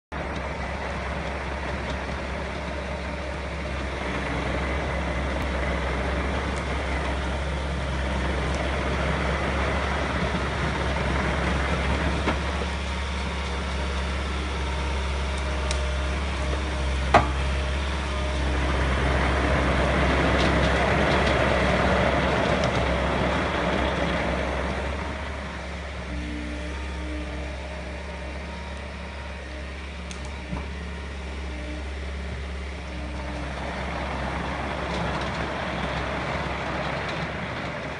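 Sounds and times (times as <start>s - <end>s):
excavator diesel engine: 0.0s - 37.9s.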